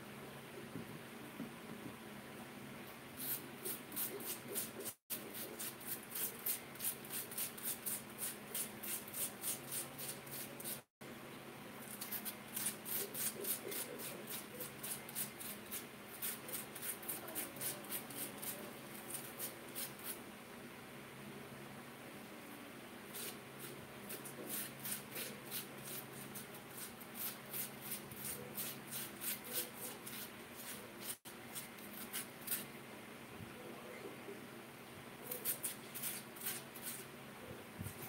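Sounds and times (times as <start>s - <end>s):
potato scraping on metal grater: 3.2s - 10.8s, 11.9s - 20.2s, 23.1s - 32.7s, 35.3s - 37.1s.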